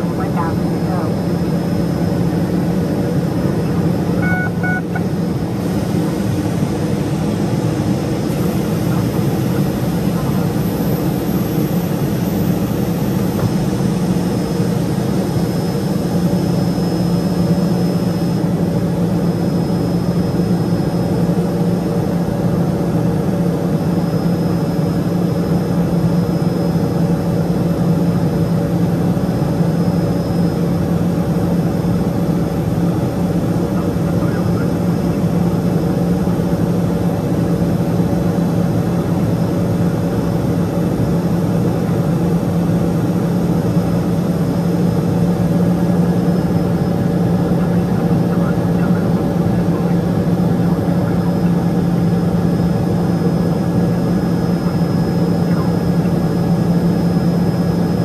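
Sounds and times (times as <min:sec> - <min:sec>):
faint high whine: 0:00.0 - 0:22.8
aircraft engine cabin drone: 0:00.0 - 0:58.0.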